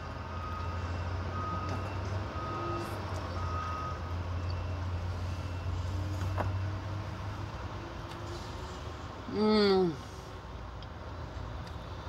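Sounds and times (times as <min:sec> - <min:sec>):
vehicle reversing alarm beeps: 0:00.0 - 0:07.9
low engine hum: 0:00.0 - 0:12.0.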